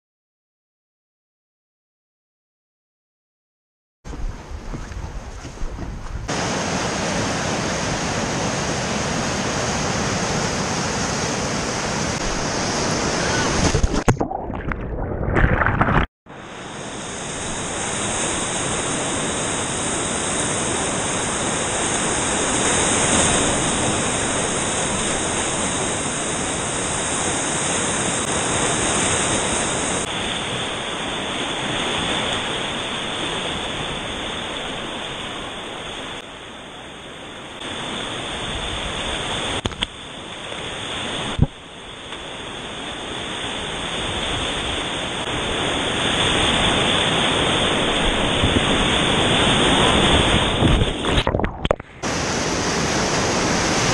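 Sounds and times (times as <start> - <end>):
whitewater rapids rushing: 6.3 - 13.8, 42.7 - 53.9.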